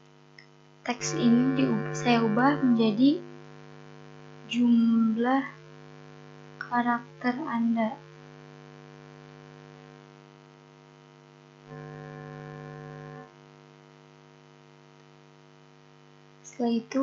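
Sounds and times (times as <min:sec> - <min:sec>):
electrical mains hum: 0:00.0 - 0:17.0.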